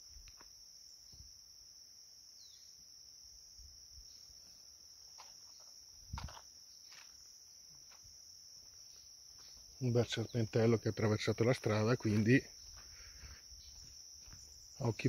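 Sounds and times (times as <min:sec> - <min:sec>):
insects droning: 0:00.0 - 0:15.0
faint footfalls: 0:05.1 - 0:09.8, 0:12.0 - 0:14.9.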